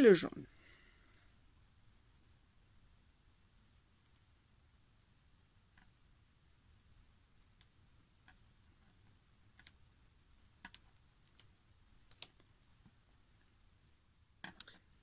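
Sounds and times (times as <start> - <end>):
crochet hook clicks: 10.6 - 12.4, 14.4 - 14.9.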